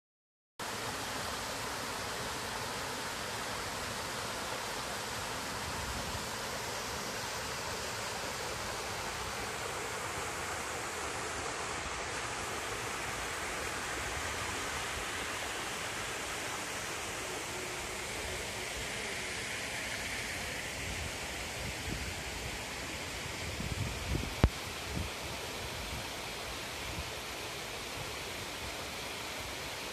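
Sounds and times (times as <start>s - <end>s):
waterfall rushing: 0.6s - 23.4s.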